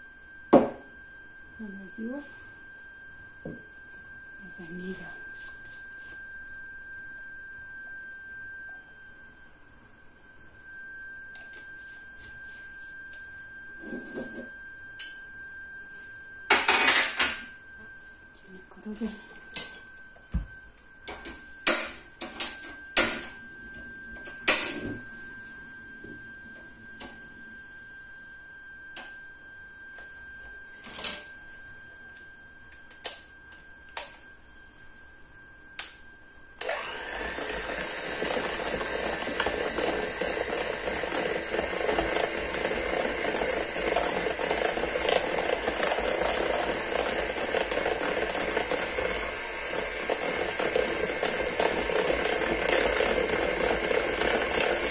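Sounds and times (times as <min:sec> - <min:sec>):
hand mixer beaters whirring: 0:36.6 - 0:54.9
mixer and bowl knocking: 0:36.6 - 0:54.9.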